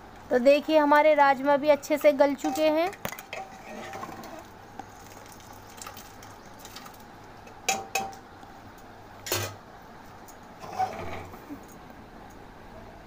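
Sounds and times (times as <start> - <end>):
ladle clinking on metal pot: 2.0 - 4.0.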